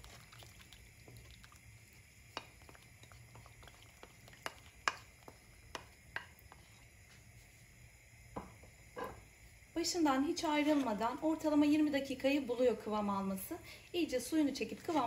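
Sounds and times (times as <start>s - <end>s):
syrup bubbling: 0.0s - 7.5s
spoon knocking a pan: 4.0s - 6.6s.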